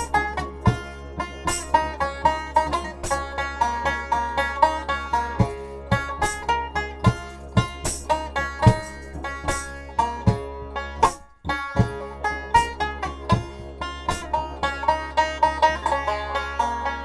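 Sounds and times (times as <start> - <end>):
banjo picking a melody: 0.0 - 17.0
didgeridoo drone: 0.0 - 17.0
kick drum beats: 0.1 - 1.0, 7.0 - 8.0, 8.6 - 10.6, 11.7 - 12.2, 13.3 - 14.3.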